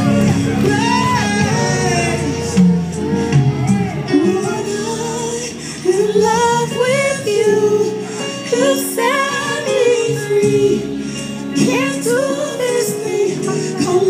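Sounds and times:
backing music: 0:00.0 - 0:14.0
woman singing worship song: 0:04.1 - 0:14.0.

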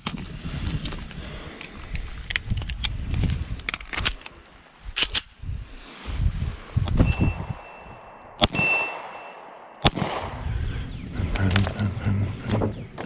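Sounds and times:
pistol handling clicks: 0:05.0 - 0:05.4
short metallic ring: 0:07.0 - 0:09.7
pistol shots: 0:08.4 - 0:10.4.

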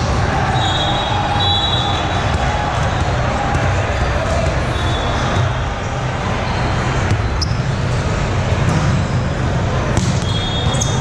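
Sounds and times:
rumble of many voices: 0:00.0 - 0:11.0
balls thumping: 0:02.0 - 0:04.6, 0:07.0 - 0:07.5, 0:09.9 - 0:10.4.

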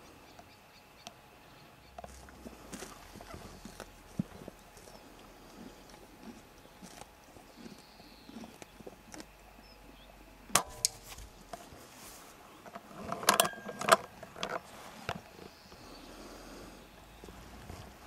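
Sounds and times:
rifle handling rattles: 0:12.6 - 0:14.7.

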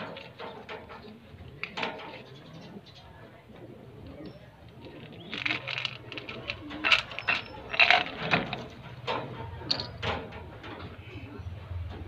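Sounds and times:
pigeons cooing: 0:00.0 - 0:12.0
clicks and knocks in wire cage: 0:05.2 - 0:11.0.

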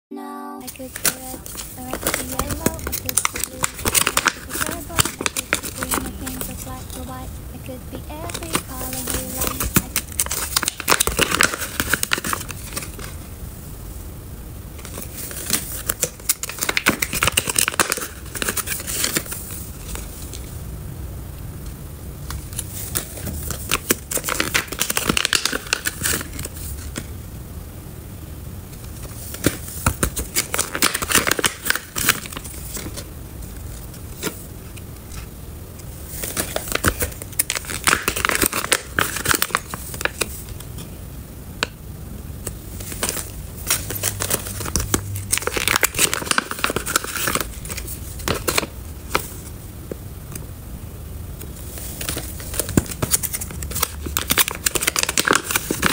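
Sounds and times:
foil pouches crinkling: 0:00.6 - 0:07.3, 0:08.2 - 0:13.2, 0:14.8 - 0:20.4, 0:22.3 - 0:27.1, 0:28.8 - 0:35.3, 0:36.0 - 0:40.8, 0:42.8 - 0:49.5, 0:51.6 - 0:55.9.

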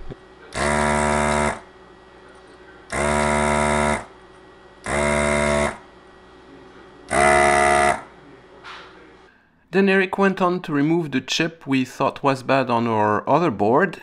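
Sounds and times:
desoldering pump buzzing: 0:00.0 - 0:09.2.

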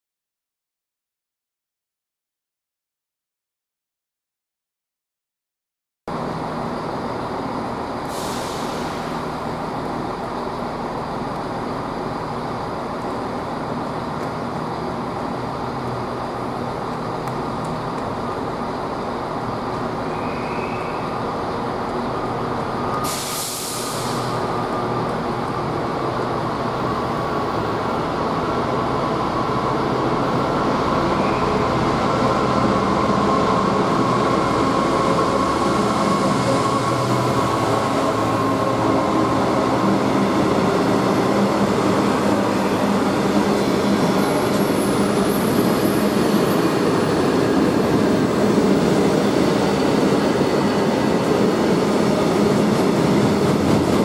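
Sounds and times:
diesel locomotive engine running: 0:06.1 - 0:54.0
short hisses: 0:08.1 - 0:09.2, 0:23.1 - 0:24.4.

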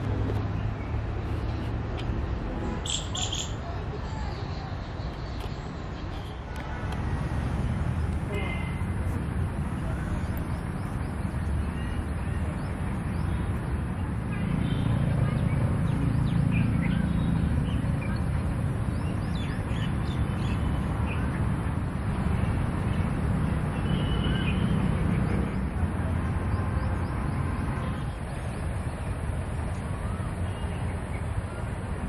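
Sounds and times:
birds chirping: 0:02.8 - 0:06.7, 0:09.6 - 0:21.7.

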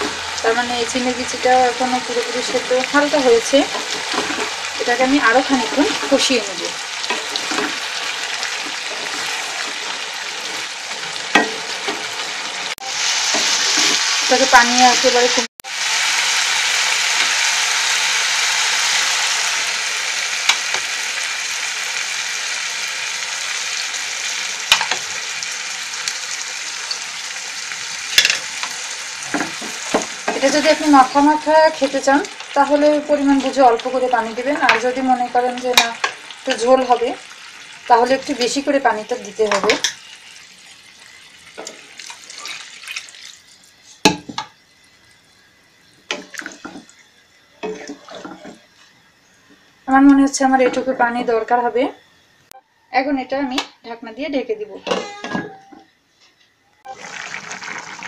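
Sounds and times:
food sizzling in oil: 0:00.0 - 0:52.3, 0:56.8 - 0:58.0
spatula scraping and stirring: 0:03.6 - 0:04.8, 0:07.0 - 0:12.1, 0:47.6 - 0:48.9
water splashing into a pan: 0:39.2 - 0:44.5, 0:46.1 - 0:47.0, 0:56.9 - 0:58.0.

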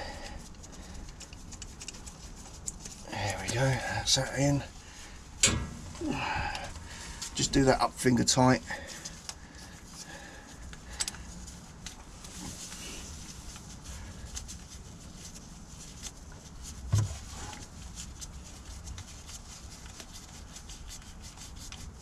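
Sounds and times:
faint clicks and rubbing of hands: 0:00.0 - 0:04.6, 0:05.4 - 0:22.0
low background hum: 0:00.0 - 0:22.0
short vocal sound: 0:06.0 - 0:06.7.

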